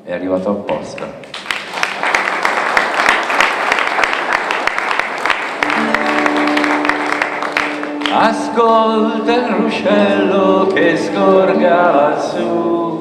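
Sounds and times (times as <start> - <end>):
audience applause: 1.3 - 8.6
acoustic guitar chords: 5.6 - 13.0
man singing: 8.0 - 13.0.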